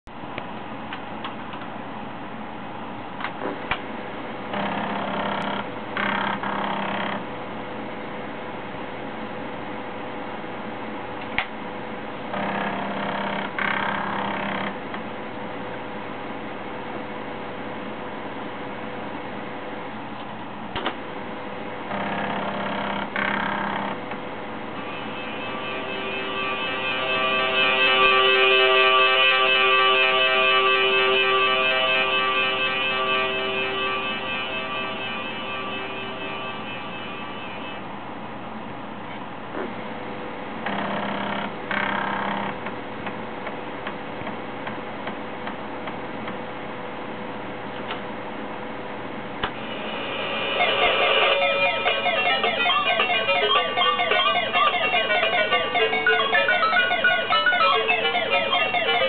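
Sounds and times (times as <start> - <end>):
faint hum: 0.1 - 59.0
floppy drive buzzing tone: 20.9 - 38.8, 40.5 - 59.0
floppy drive stepper buzzing: 24.7 - 37.8.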